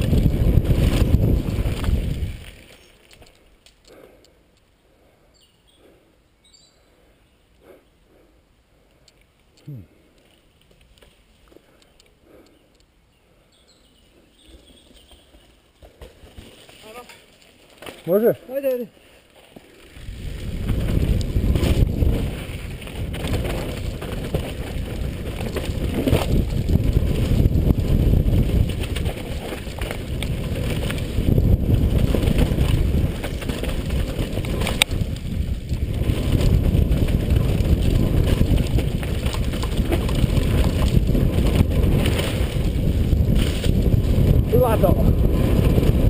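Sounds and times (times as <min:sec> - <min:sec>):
wind rushing on microphone: 0:00.0 - 0:02.6, 0:20.0 - 0:46.0
tyres rolling over dirt: 0:19.4 - 0:46.0
bike knocking on bumps: 0:20.4 - 0:44.5.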